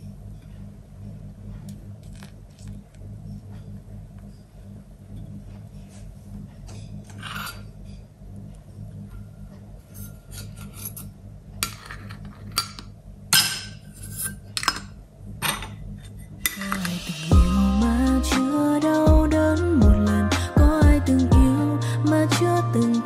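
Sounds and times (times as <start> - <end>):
steady low hum: 0.0 - 23.0
light metal clinks and scrapes: 6.6 - 8.1, 9.8 - 12.7, 13.6 - 14.8.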